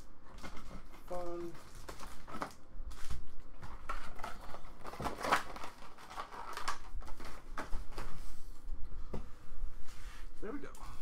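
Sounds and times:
foil packs crinkling: 0.3 - 8.2.

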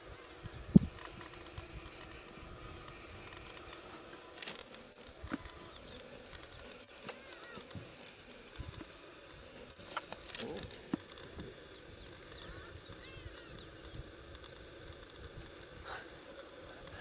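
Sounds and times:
insect drone: 0.0 - 17.0
faint bird chirps: 11.6 - 14.7.

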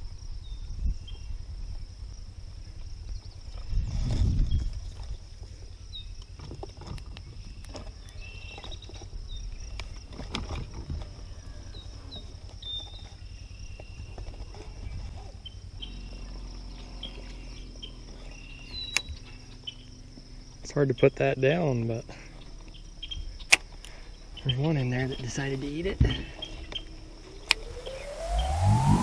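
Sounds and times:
crickets shrilling: 0.0 - 29.0
low steady hum: 7.2 - 29.0
bird chirps: 7.3 - 10.0, 11.2 - 21.2, 22.0 - 29.0
low rumble: 11.2 - 29.0.

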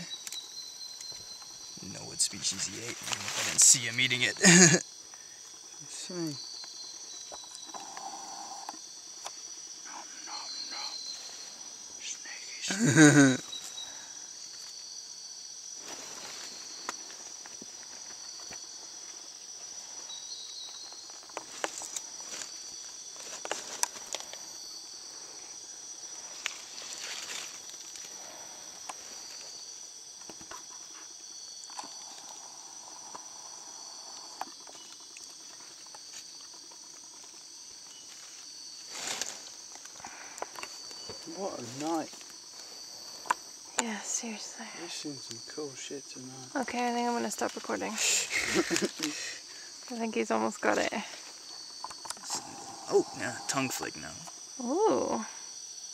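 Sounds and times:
night insect chorus: 0.0 - 55.9
leaf litter rustling: 2.5 - 3.8, 15.8 - 17.2, 26.1 - 29.7, 38.0 - 39.9
human vocal sound: 4.4 - 4.8, 52.2 - 53.6.

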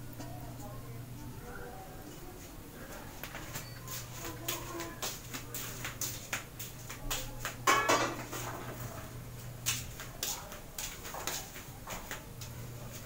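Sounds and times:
dishes and utensils clattering: 7.6 - 9.1.

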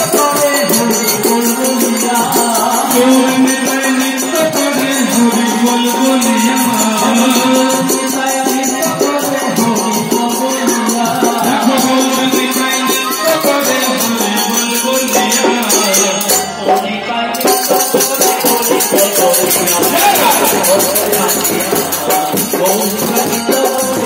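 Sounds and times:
hand cymbals and percussion: 0.0 - 24.0
person singing into a microphone: 0.0 - 24.0
sustained held notes: 18.5 - 23.2.

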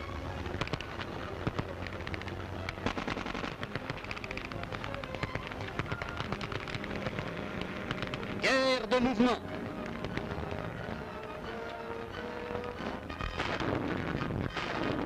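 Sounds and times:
rifle and machine-gun fire: 0.6 - 8.4.

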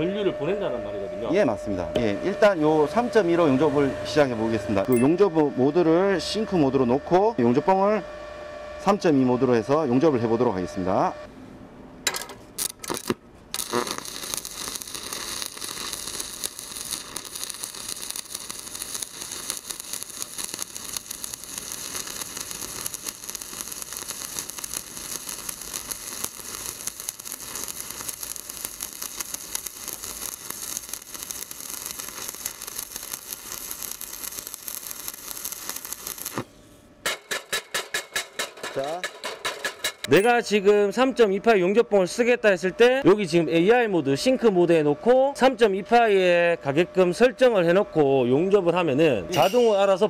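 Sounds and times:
welding arc crackling: 12.4 - 40.1.

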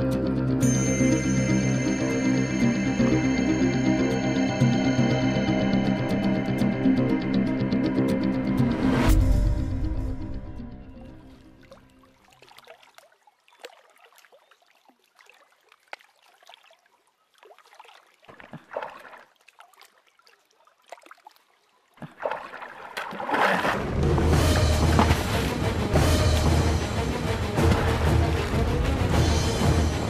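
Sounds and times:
music: 0.0 - 12.0, 23.8 - 30.0
pond water splashing: 10.9 - 30.0.

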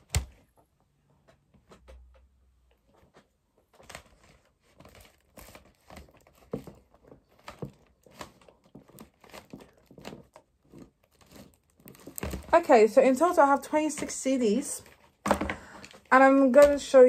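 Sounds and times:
plastic cases clacking: 3.8 - 12.7.

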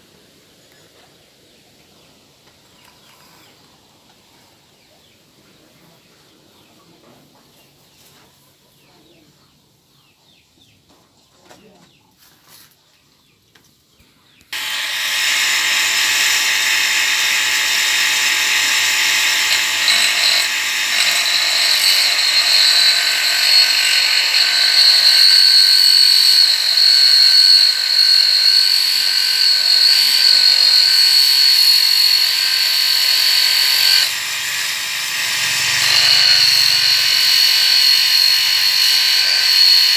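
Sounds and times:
grinding wheel whining: 14.6 - 39.9.

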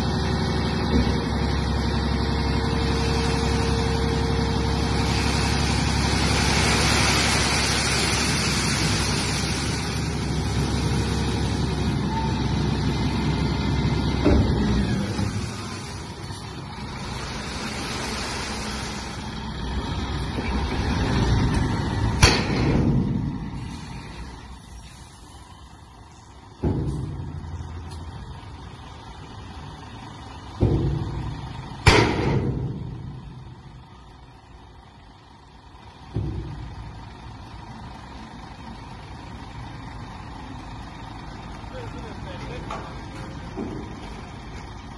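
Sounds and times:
diesel truck engine rumble: 0.0 - 44.9
rushing hiss of sand: 4.9 - 10.4, 23.5 - 25.4
loud sharp metal clanks: 22.2 - 23.3, 30.6 - 33.2.

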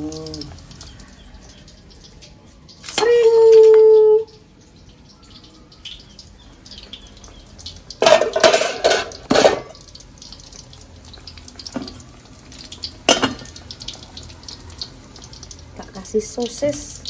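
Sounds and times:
pots clinking: 5.4 - 14.3.

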